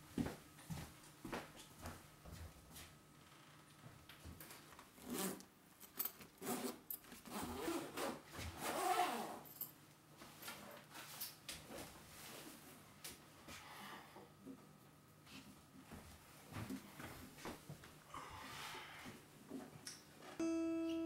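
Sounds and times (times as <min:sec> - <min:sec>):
zipper pulls: 0:05.0 - 0:05.4, 0:06.4 - 0:09.4.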